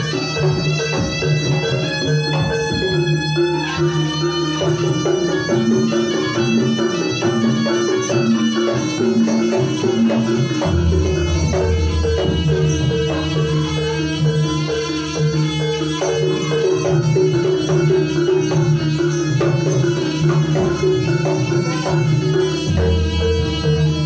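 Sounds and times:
hand drum playing: 0:00.0 - 0:24.0
reedy wind instrument melody: 0:00.0 - 0:24.0.

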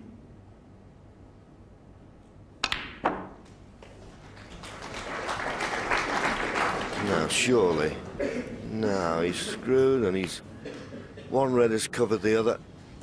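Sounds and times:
sharp clicks of cue and balls: 0:02.2 - 0:04.0.

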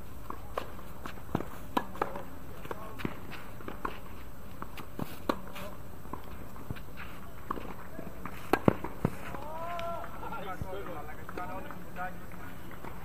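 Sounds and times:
sharp taps on hard court: 0:00.3 - 0:04.0, 0:07.5 - 0:11.8.

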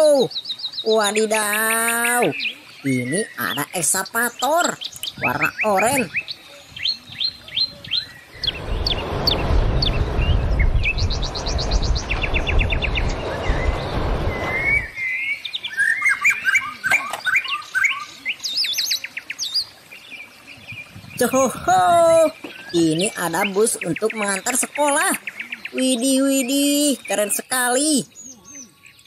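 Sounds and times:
small birds chirping: 0:00.0 - 0:29.0
loud steady rumbling: 0:08.3 - 0:14.9.

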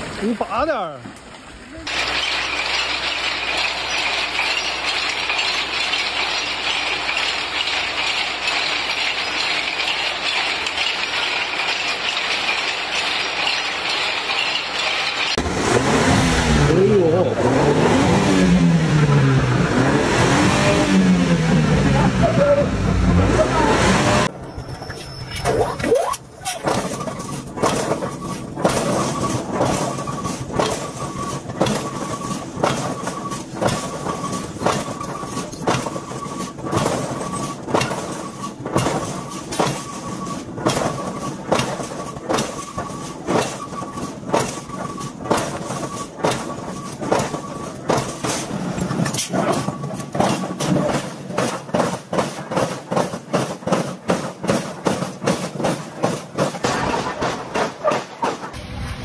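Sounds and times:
car engine revving: 0:15.4 - 0:24.3
metallic knocks of forging steel: 0:26.4 - 0:58.5.

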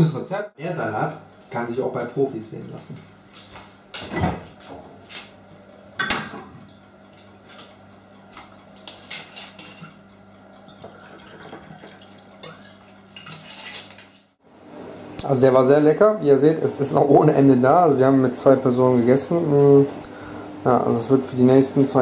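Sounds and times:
dishes and cutlery clattering: 0:08.8 - 0:10.0, 0:10.8 - 0:14.2.

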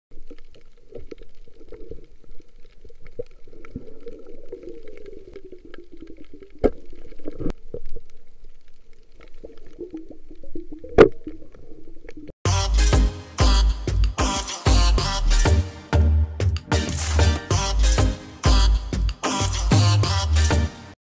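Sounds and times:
underwater bubbling and gurgling: 0:00.1 - 0:12.3
crackles: 0:00.1 - 0:12.4.

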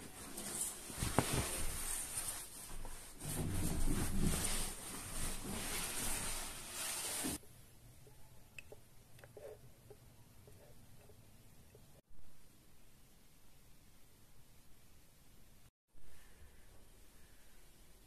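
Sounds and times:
cloth rubbing leather sofa: 0:00.1 - 0:07.4.

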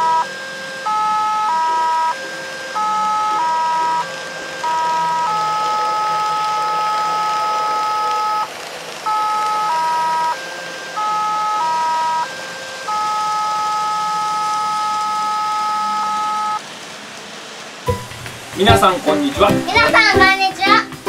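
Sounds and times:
electronic tune of pure tones: 0:00.0 - 0:16.6.

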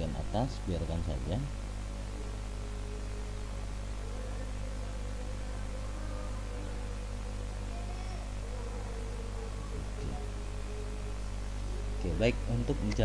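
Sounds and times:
background hiss: 0:00.0 - 0:13.0
low electrical hum: 0:00.0 - 0:13.0.

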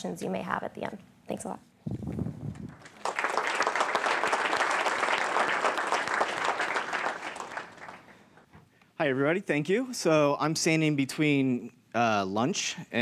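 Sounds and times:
audience applauding: 0:02.6 - 0:08.5.

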